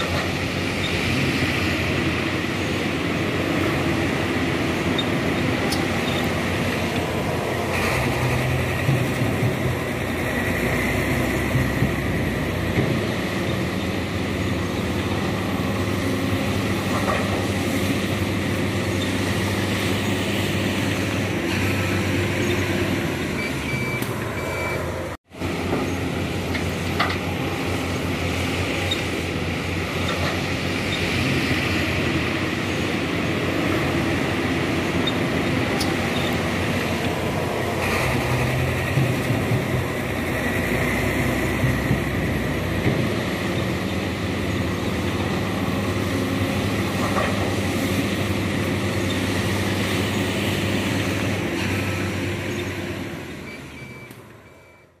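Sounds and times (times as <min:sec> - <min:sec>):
soil loading into truck: 0:00.0 - 0:54.8
heavy diesel engines running: 0:00.0 - 0:55.0.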